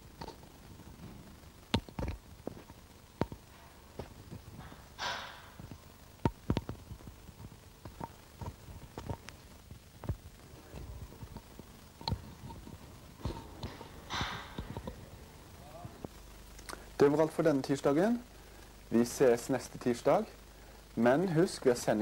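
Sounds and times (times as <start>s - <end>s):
sharp knocks and clicks: 4.3s - 7.1s, 13.2s - 15.0s.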